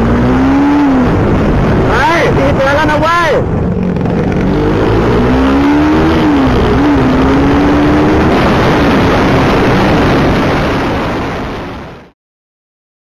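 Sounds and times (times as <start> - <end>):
motorcycle engine running: 0.0 - 2.0, 2.6 - 10.7
wind and road rush: 0.0 - 12.2.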